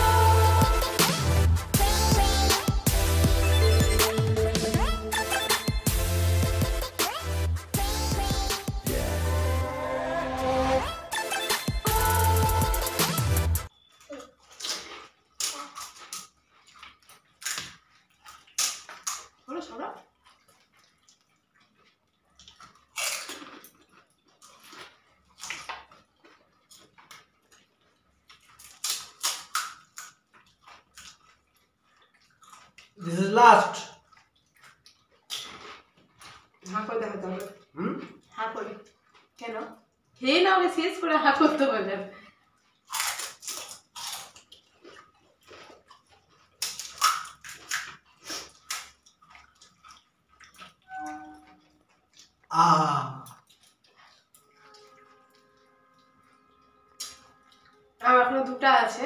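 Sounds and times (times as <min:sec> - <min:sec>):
crisp shells crunching: 0:22.3 - 0:31.6, 0:42.7 - 0:50.7
crisp shells crackling: 0:42.8 - 0:50.8.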